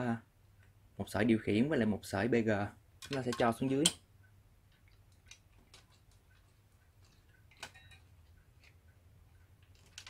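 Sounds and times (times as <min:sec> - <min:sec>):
faint clicks and ticks: 0:03.0 - 0:10.0.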